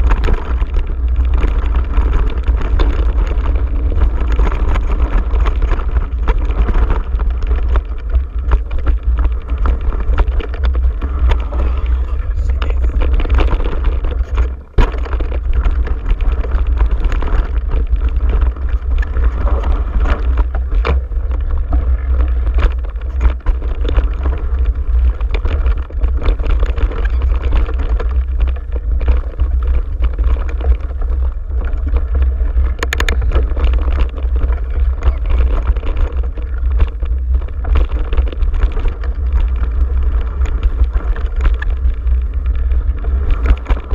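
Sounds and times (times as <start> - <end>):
bike clicking and rattling: 0.0 - 43.9
bike tyres on dirt: 0.0 - 43.9
heavy rumble on microphone: 0.0 - 43.9.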